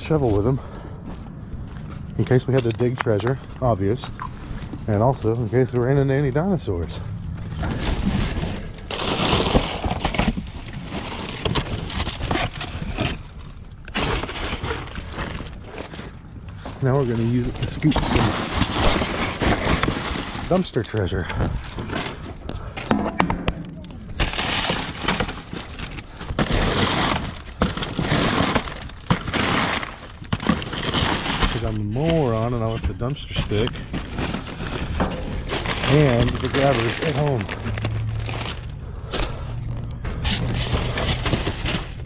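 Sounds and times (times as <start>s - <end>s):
plastic bags rustling: 2.2s - 22.8s, 23.8s - 42.0s
shovel scooping through trash: 7.5s - 22.7s, 24.2s - 42.0s.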